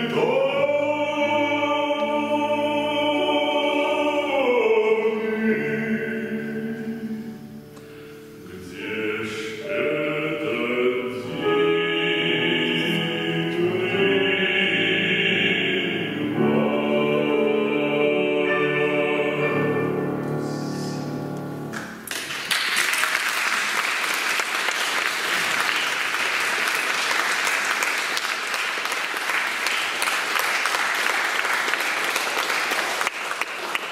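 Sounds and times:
piano: 0.0s - 33.9s
audience applause: 22.0s - 33.9s.

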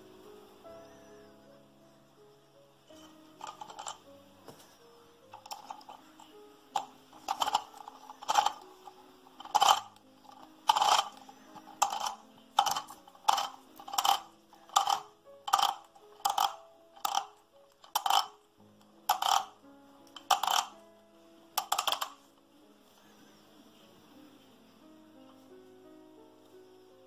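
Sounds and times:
grinder adjustment wheel clicking: 3.4s - 4.0s, 5.4s - 18.4s, 19.1s - 20.8s, 21.6s - 22.2s.

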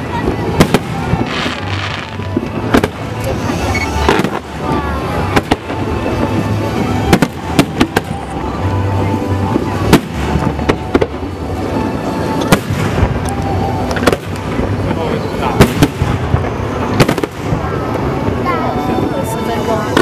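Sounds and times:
continuous rumble: 0.0s - 20.0s
fireworks bangs: 0.0s - 20.0s.

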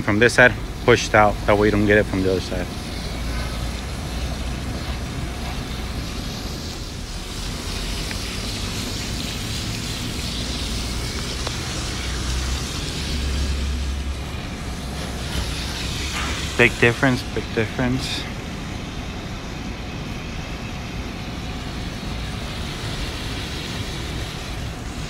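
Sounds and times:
water spraying from hose nozzle: 0.0s - 25.0s.

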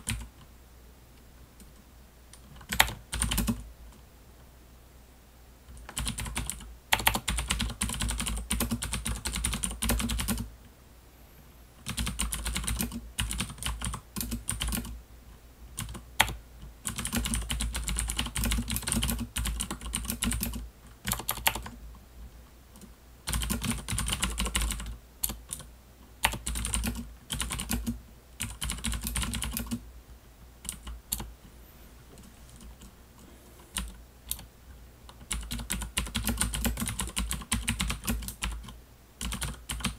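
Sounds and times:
fast typing on mechanical keyboard: 0.0s - 0.4s, 2.4s - 3.6s, 5.7s - 10.5s, 11.8s - 15.0s, 15.8s - 21.8s, 23.2s - 29.8s, 30.6s - 31.3s, 33.7s - 34.5s, 35.2s - 39.9s.

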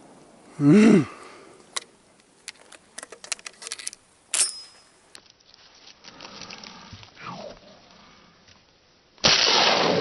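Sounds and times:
shotgun metal clicks: 1.7s - 4.8s
shotgun metallic clack: 4.3s - 4.9s.

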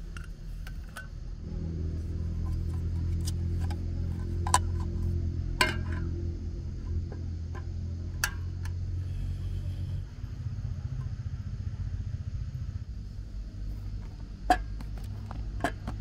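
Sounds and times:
gas stove burning low rumble: 0.0s - 16.0s.

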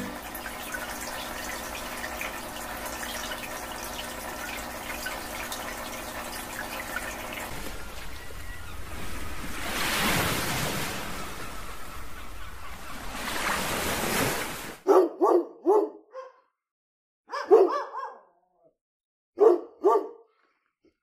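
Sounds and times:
surf washing on beach: 7.5s - 12.2s, 12.9s - 14.8s
dog barking: 14.8s - 16.5s, 17.3s - 18.7s, 19.4s - 20.3s.

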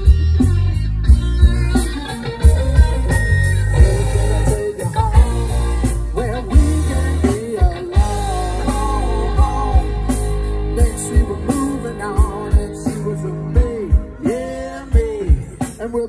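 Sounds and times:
bass guitar: 0.0s - 16.0s
drum kit beating: 0.0s - 16.0s
electric guitar: 0.0s - 16.0s
person singing: 3.7s - 16.0s.

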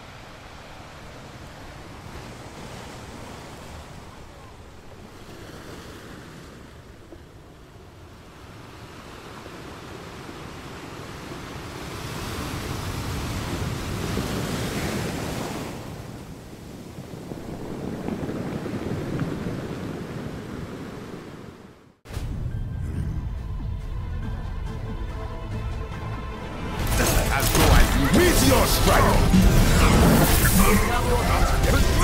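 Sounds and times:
rushing noise: 26.8s - 32.0s.

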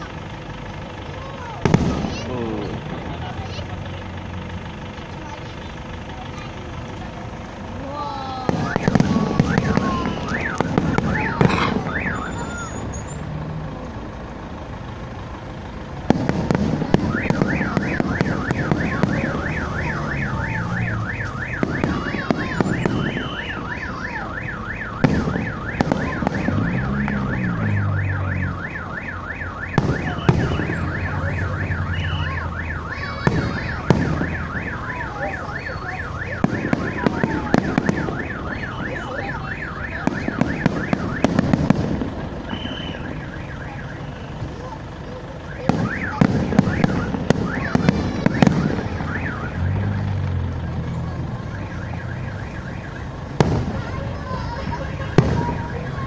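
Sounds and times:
fireworks bangs and crackling: 0.0s - 56.0s
warbling alarm: 8.5s - 12.9s, 17.0s - 44.4s, 50.9s - 53.9s.

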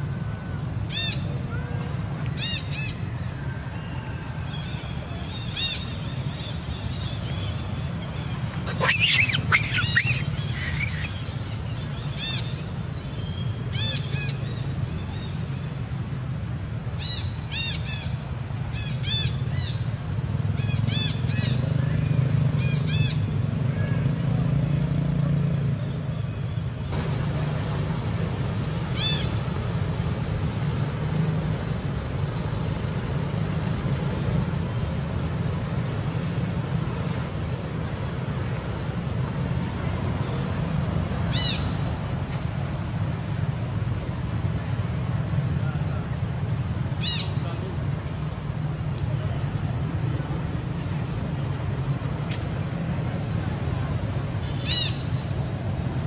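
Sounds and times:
high-pitched animal chirps: 8.7s - 11.1s.

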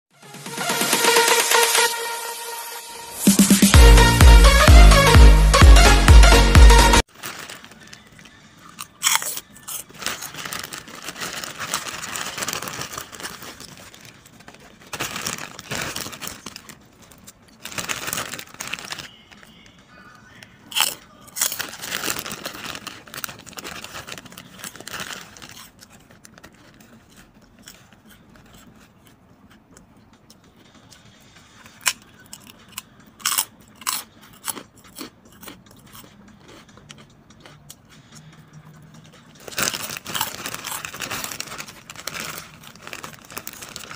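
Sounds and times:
plastic bag crinkling: 7.0s - 19.8s, 20.6s - 29.2s, 39.3s - 43.9s
crunching pork rinds: 7.1s - 43.9s.

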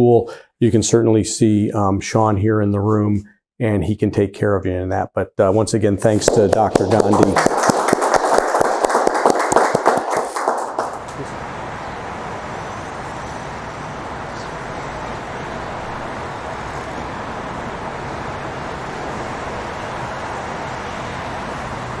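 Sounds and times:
city street traffic: 10.9s - 22.0s.

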